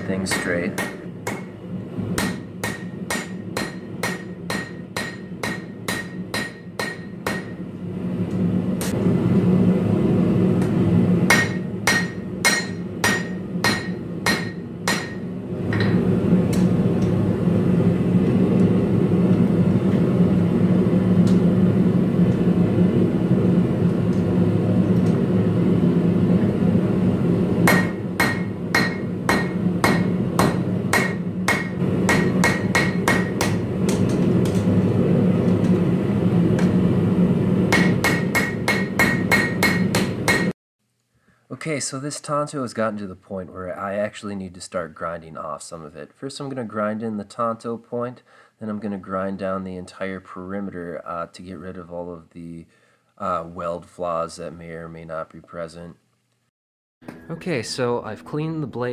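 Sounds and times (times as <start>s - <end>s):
hammer striking steel on anvil: 0.0s - 1.6s, 2.2s - 7.6s, 11.3s - 16.7s, 27.6s - 34.6s, 37.7s - 40.5s.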